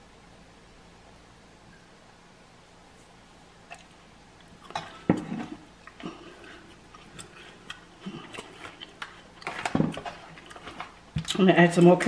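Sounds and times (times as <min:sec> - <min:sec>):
crunchy snack chewing: 0:04.5 - 0:11.3.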